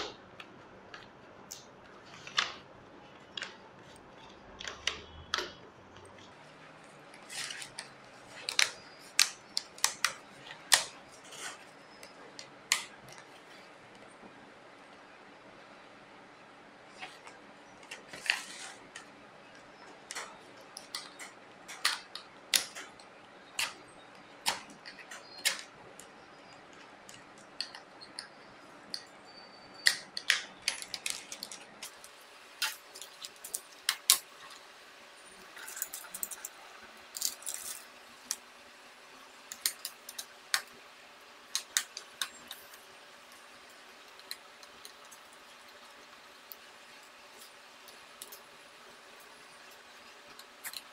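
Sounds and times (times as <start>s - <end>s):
plastic clips clicking and snapping: 7.1s - 14.1s, 16.9s - 29.1s, 29.8s - 34.6s, 39.4s - 40.8s, 41.5s - 50.9s.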